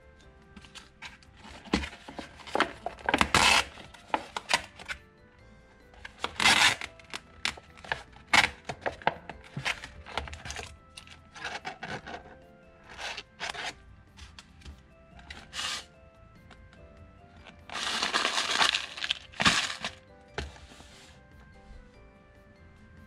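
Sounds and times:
soft background music: 0.0 - 23.0
plastic film and foil crinkling: 0.7 - 5.0, 6.1 - 12.3, 17.7 - 20.0.

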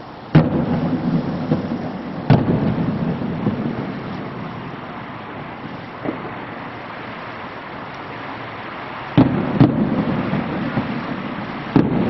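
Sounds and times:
firework booms: 0.3 - 7.5, 9.1 - 12.0.

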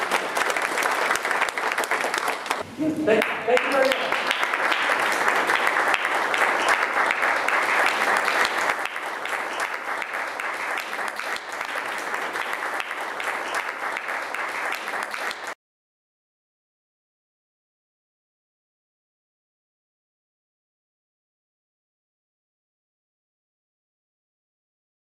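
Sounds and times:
audience applauding: 0.0 - 15.6.

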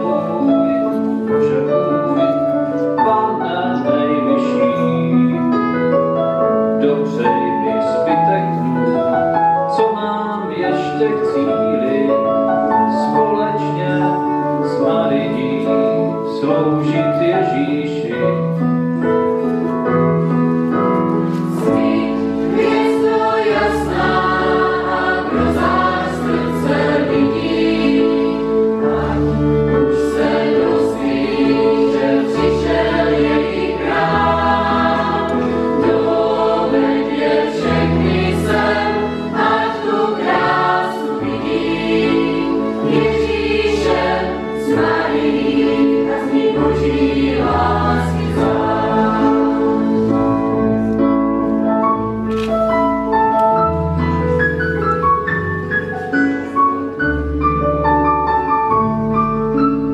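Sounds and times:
keyboard: 0.0 - 59.9
mixed choir singing a hymn: 21.3 - 50.9.

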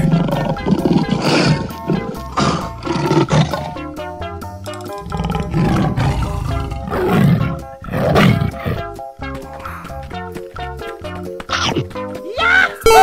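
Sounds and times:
lion roaring: 0.0 - 3.9, 5.0 - 9.0
tiger roaring: 0.0 - 3.9, 5.0 - 9.0
background music: 0.0 - 13.0.

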